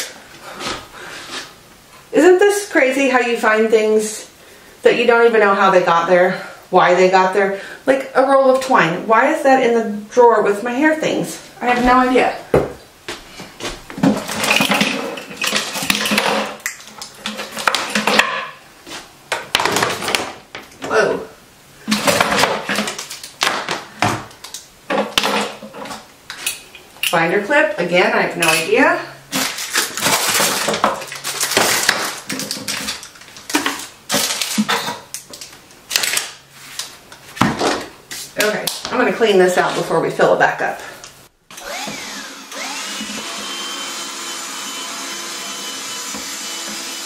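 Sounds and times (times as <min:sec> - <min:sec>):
objects rattling in wooden drawer: 0:14.0 - 0:18.4.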